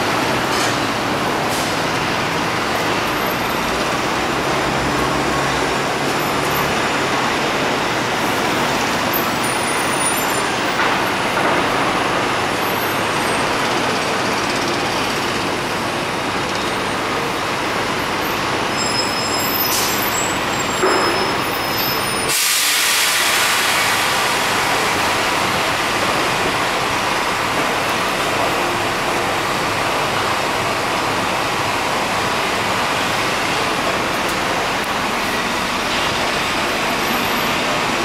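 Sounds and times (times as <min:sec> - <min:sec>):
train rail and wheel noise: 0:00.0 - 0:38.0
high wheel squeals: 0:08.4 - 0:10.8, 0:18.0 - 0:22.4
train clank: 0:18.8 - 0:24.2.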